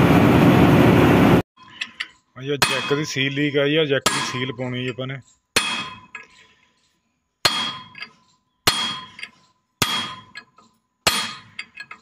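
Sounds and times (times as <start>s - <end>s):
small metal clinks: 4.2s - 7.0s, 7.7s - 12.0s.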